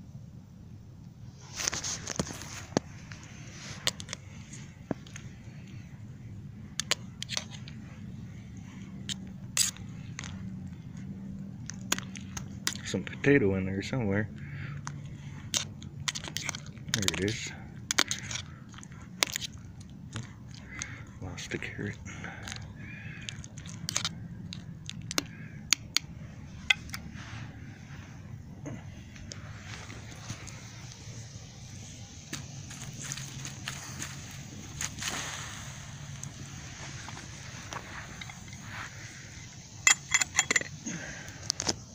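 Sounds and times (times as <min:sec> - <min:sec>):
campfire crackling: 0:01.0 - 0:41.9.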